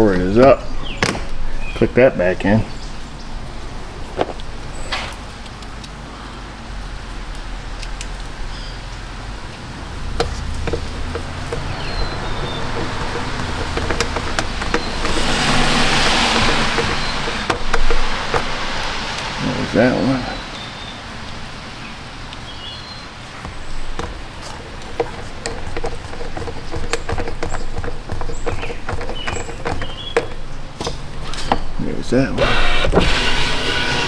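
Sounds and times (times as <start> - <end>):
window glass moving: 10.2 - 20.3, 32.3 - 34.0
power window motor humming: 10.6 - 18.6, 32.4 - 34.0.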